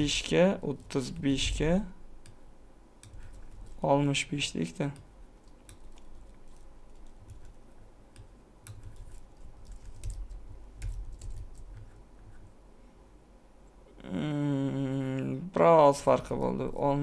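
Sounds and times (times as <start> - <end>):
keyboard keystrokes: 8.2 - 11.9.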